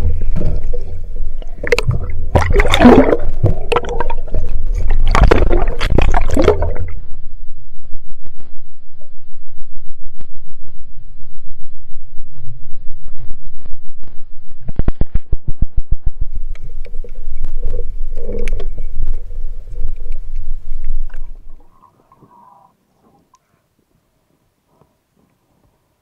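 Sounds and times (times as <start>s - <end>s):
clicks and knocks underwater: 0.0s - 7.0s, 14.6s - 22.3s
underwater rush of water: 0.0s - 7.0s.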